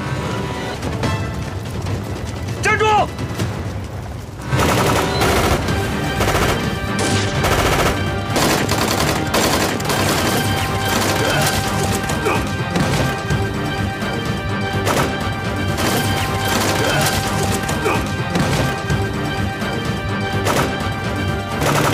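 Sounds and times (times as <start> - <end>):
gunfire: 4.4 - 13.4, 14.8 - 19.0, 20.4 - 21.9.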